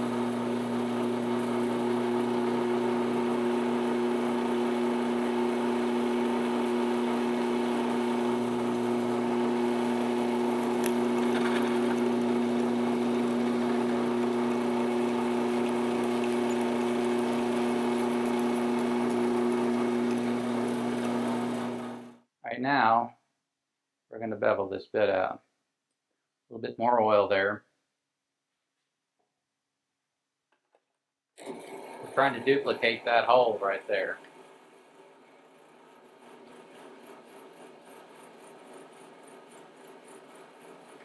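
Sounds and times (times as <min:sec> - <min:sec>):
drill press humming: 0:00.0 - 0:22.2, 0:31.4 - 0:41.0
drill bit drilling into steel: 0:00.2 - 0:22.1.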